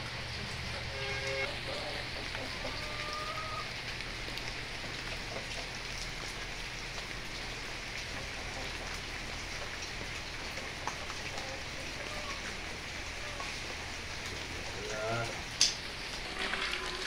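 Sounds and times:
steady rain falling: 0.0s - 17.0s
single raindrops ticking: 15.5s - 16.2s.

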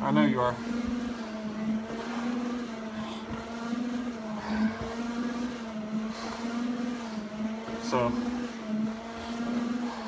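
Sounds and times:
stair-climbing machine motor humming: 0.0s - 10.0s.

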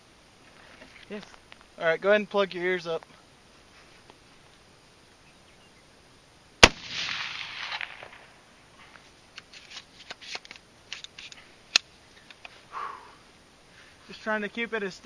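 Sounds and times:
quiet sharp crack: 6.6s - 8.4s
rifle shot with echo: 6.6s - 8.4s.

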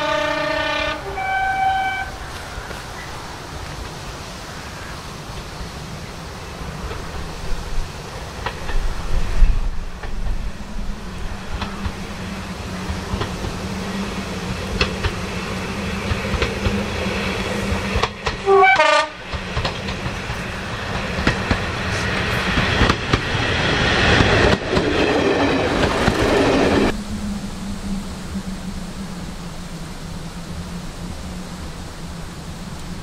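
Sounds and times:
two-tone train horn blast: 0.0s - 2.4s, 18.0s - 19.3s
diesel railcar passing: 0.0s - 33.0s
wheels clicking over rail joints: 6.6s - 26.9s.

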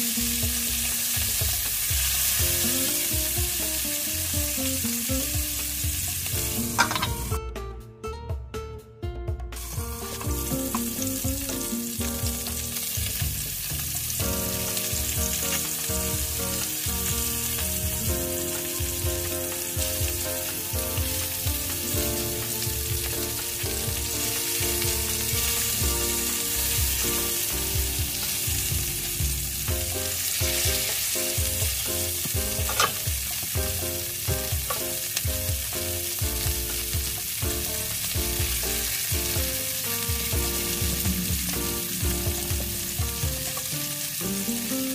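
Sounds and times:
fish sizzling in oil: 0.0s - 7.4s, 9.6s - 44.9s
spatula scraping pan: 32.6s - 33.4s.

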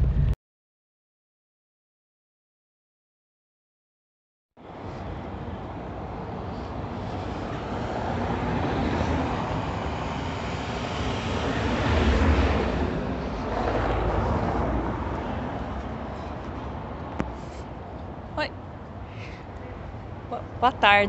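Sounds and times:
vehicles passing: 4.6s - 21.0s.

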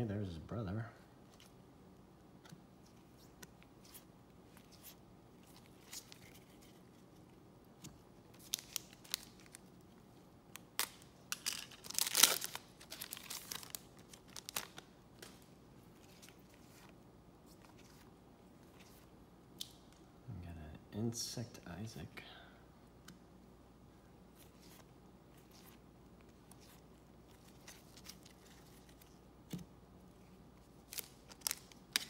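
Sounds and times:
wrapper crinkling and tearing: 8.4s - 9.7s, 10.6s - 15.4s, 30.8s - 32.0s.

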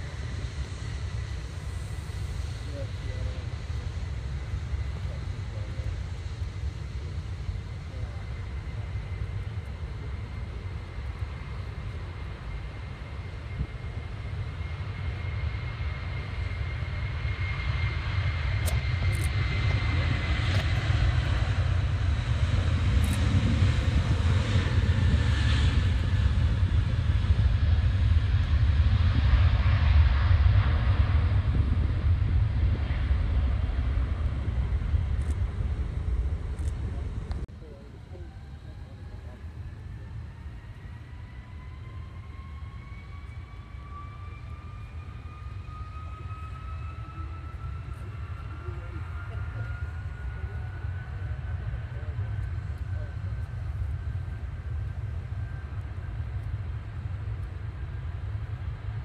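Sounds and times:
jet airliner taking off: 0.0s - 59.0s.

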